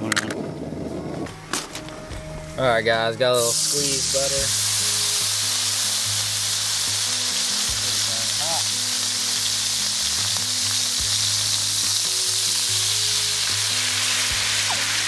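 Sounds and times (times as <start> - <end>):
low background music: 0.0 - 15.0
butter sizzling in hot skillet: 3.4 - 15.0.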